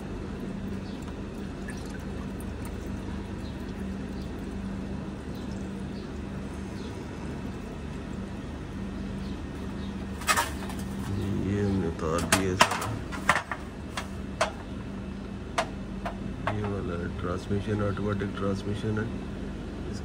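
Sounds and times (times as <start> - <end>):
fluid trickling and dripping: 0.0 - 10.1
steady low hum: 0.0 - 20.0.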